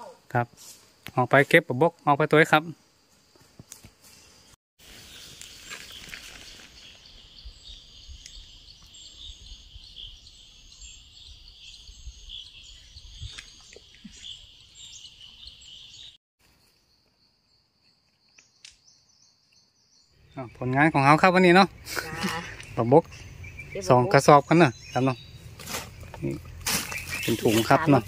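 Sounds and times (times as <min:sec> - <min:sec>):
insects buzzing: 0:00.0 - 0:11.8
small bird chirps: 0:05.0 - 0:28.0.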